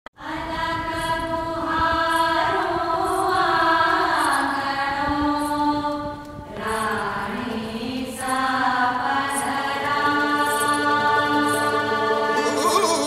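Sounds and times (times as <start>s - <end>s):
person chanting slowly: 9.1s - 13.0s.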